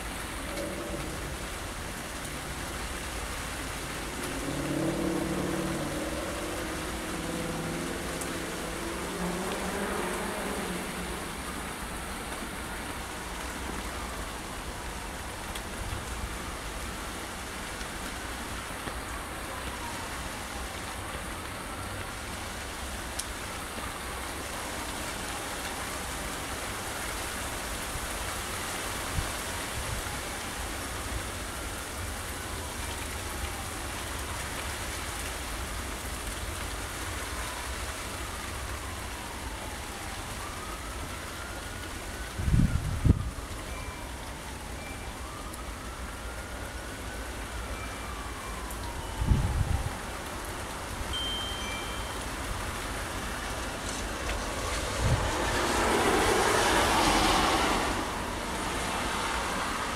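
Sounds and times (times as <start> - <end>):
rain and wind in trees: 0.0 - 59.9
wind rumble on microphone: 42.2 - 43.6, 49.0 - 50.3, 53.4 - 58.7.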